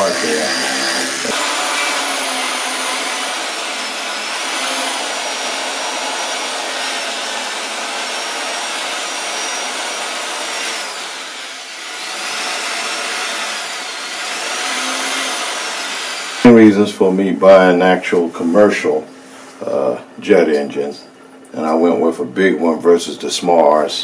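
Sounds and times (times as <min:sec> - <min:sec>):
electric drill brush scrubbing metal: 0:00.0 - 0:16.7.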